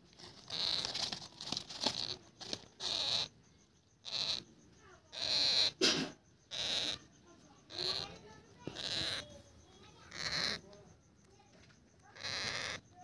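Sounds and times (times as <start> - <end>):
parrot chick begging calls: 2.8 - 3.4, 4.0 - 4.5, 5.1 - 5.8, 6.5 - 7.1, 7.7 - 10.7, 12.0 - 13.0.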